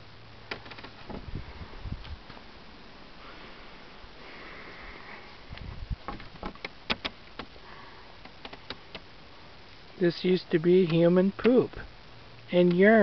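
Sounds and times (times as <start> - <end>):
sharp crackles and clicks: 6.0 - 13.0.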